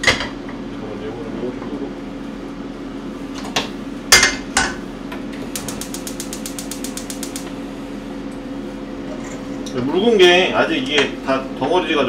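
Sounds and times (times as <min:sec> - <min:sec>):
appliance humming: 0:00.0 - 0:12.0
rapid even clicks: 0:05.5 - 0:07.5.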